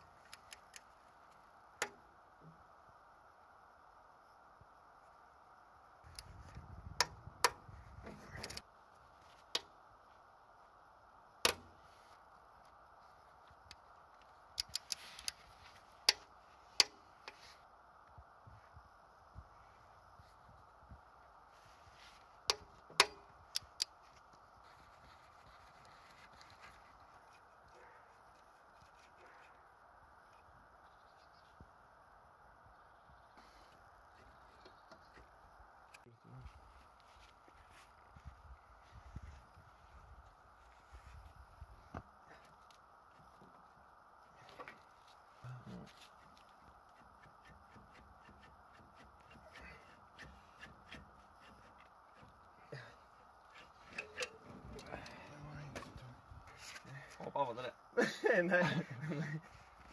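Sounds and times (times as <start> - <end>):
faint steady hiss: 0.0 - 59.9
rustle of handling: 11.7 - 18.8, 19.4 - 30.6, 33.3 - 57.5.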